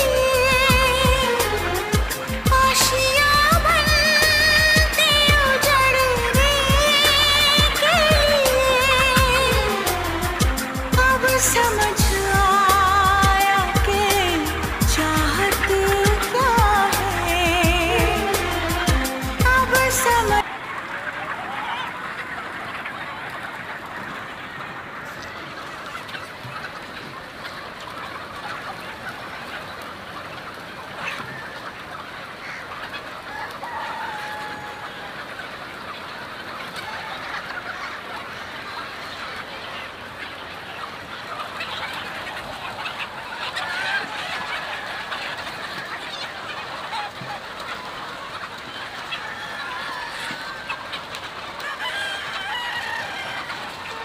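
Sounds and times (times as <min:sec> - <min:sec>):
chickens clucking: 0:00.0 - 0:54.0
drawn-out chicken calls: 0:00.0 - 0:54.0.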